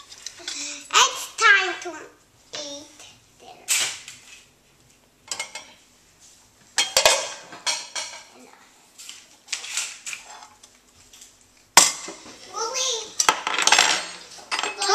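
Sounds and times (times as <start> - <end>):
cutlery and plate clattering: 5.3 - 5.8, 6.8 - 8.3, 13.2 - 14.9.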